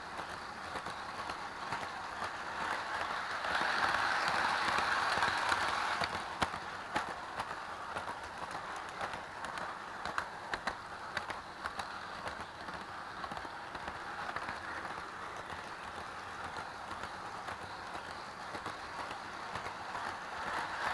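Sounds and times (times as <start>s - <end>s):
toy train motor whirring: 0.0s - 20.9s
wheels clicking on rail joints: 0.0s - 20.9s.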